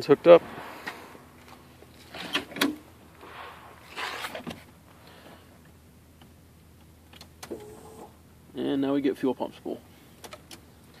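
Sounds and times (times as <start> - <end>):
fuel pump humming: 0.4 - 8.6.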